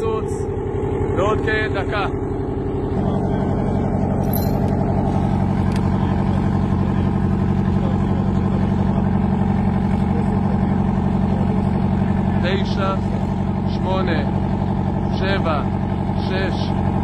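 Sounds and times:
heavy engine idling: 0.0s - 17.0s.

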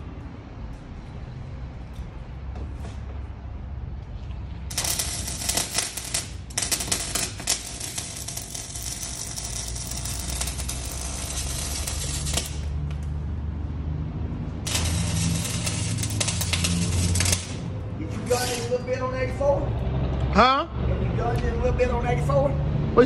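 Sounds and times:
arc welding crackling sizzle: 4.7s - 13.1s, 14.6s - 18.7s.

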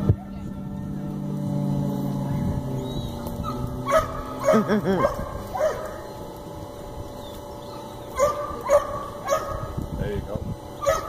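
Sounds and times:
dog barking and yipping: 3.4s - 6.0s, 8.2s - 9.7s, 10.8s - 11.0s.

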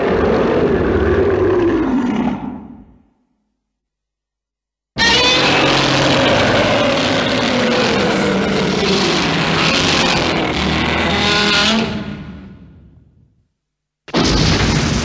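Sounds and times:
monster roar: 0.0s - 3.0s, 5.0s - 12.5s.

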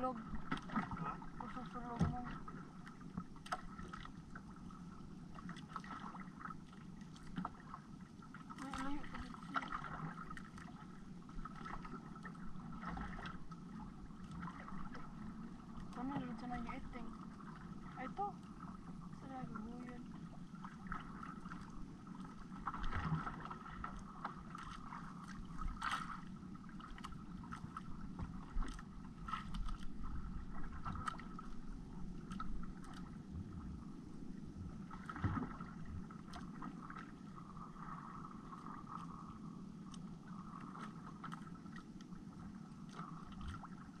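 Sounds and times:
knocks and splashes: 0.0s - 2.6s, 8.6s - 10.7s, 22.6s - 25.0s, 34.9s - 37.1s
water around boat hull: 0.0s - 44.0s.

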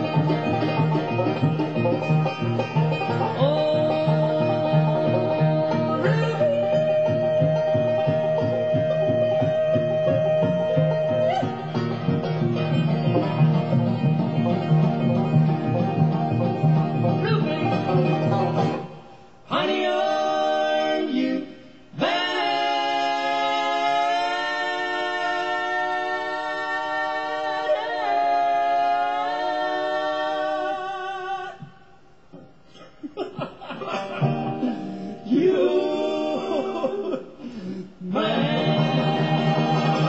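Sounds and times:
bluegrass band playing: 0.0s - 21.3s, 22.0s - 30.4s, 34.0s - 36.5s, 38.1s - 40.0s
unaccompanied vocal harmony: 3.2s - 11.9s, 17.2s - 31.8s, 35.2s - 40.0s.

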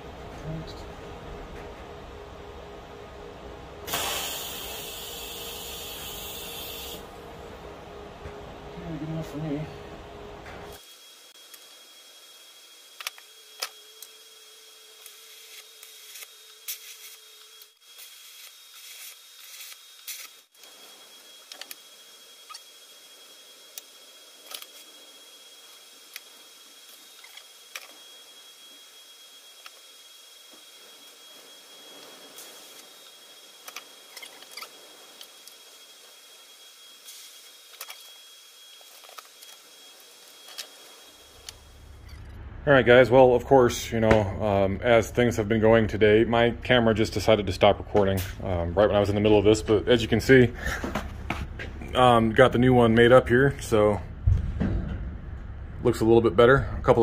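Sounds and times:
faint high whine: 0.0s - 50.8s
faint steady hum: 0.0s - 57.0s
welding arc hiss and crackle: 3.8s - 7.1s, 10.7s - 42.2s.

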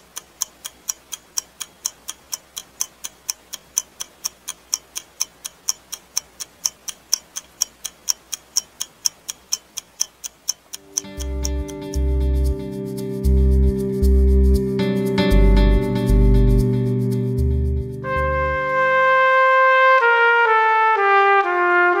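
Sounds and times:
clock ticking fast: 0.0s - 12.6s
soft sustained music notes: 10.8s - 20.2s.

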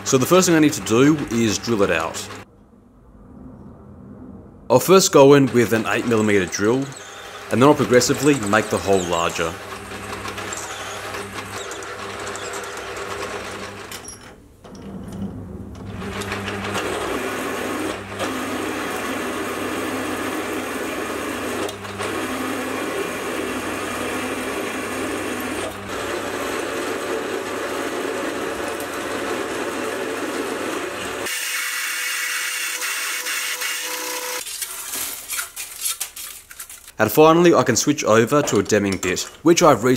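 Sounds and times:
lathe motor hum: 0.0s - 2.4s, 5.5s - 14.0s, 15.8s - 34.4s
drill cutting into steel: 5.7s - 14.0s, 16.1s - 35.0s.

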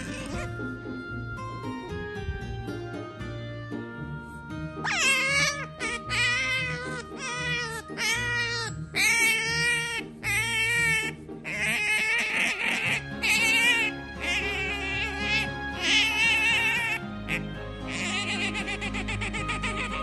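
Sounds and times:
cat meowing: 0.0s - 0.5s, 4.8s - 20.0s.

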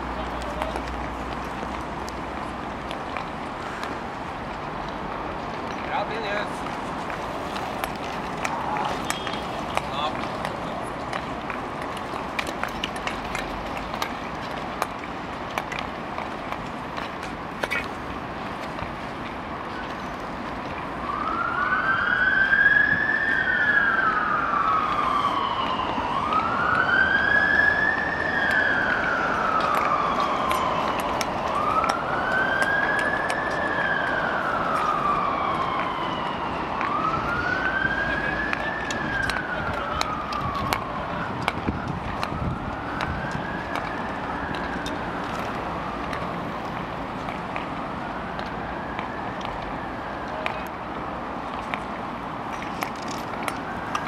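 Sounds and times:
emergency vehicle siren wailing: 0.0s - 54.0s.

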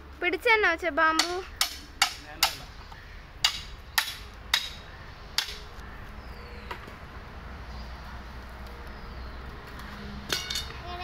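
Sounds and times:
machete chopping bamboo: 1.2s - 2.6s, 3.4s - 4.8s, 5.4s - 5.6s.

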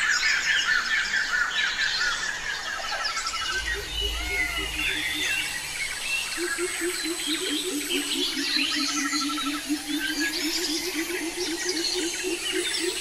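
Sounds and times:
birds chirping and singing: 0.0s - 13.0s
low pulsed bird call: 3.2s - 13.0s
low rumble: 3.4s - 8.2s.

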